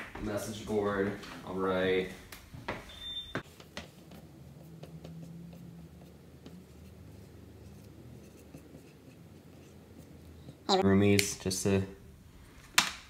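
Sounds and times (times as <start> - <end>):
marker squeaking on whiteboard: 3.4 - 10.6.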